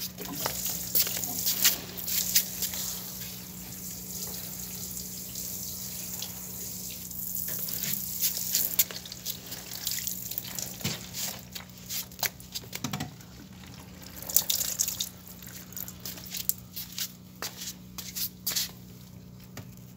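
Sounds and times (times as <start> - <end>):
water pouring and splashing: 0.0 - 12.4, 13.2 - 16.6
water dripping: 13.5 - 16.6.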